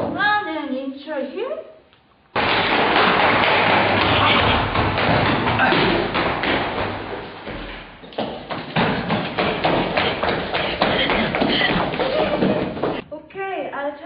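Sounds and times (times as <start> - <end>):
running footsteps on stairs and floor: 2.3 - 13.0.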